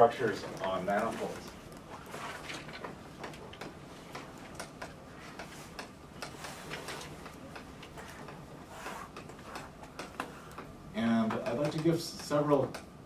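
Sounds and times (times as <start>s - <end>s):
chalk tapping and scratching on blackboard: 5.2s - 10.7s.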